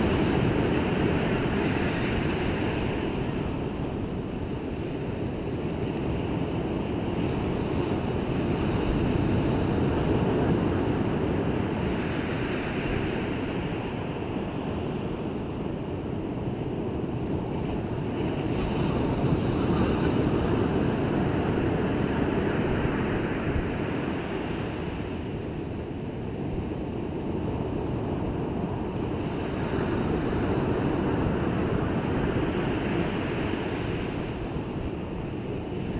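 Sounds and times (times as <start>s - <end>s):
sea waves washing in: 0.0s - 35.9s.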